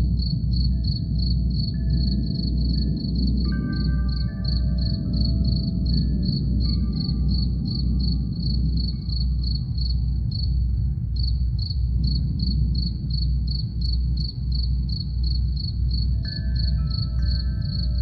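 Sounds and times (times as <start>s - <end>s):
crickets chirping: 0.0s - 18.0s
deep low drum pulse: 0.0s - 18.0s
ringing wind chime tones: 1.4s - 9.8s, 16.2s - 18.0s.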